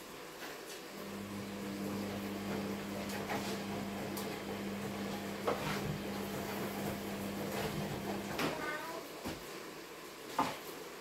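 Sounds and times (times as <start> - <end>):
kitchen appliance hum: 0.9 - 8.6.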